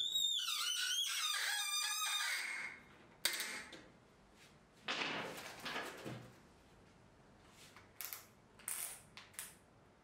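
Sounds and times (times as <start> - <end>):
high wavering squeaks: 0.0 - 2.8.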